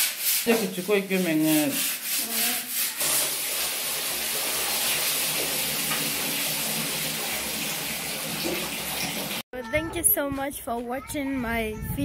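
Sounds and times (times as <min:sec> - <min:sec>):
tap water running into bucket: 0:03.0 - 0:09.4.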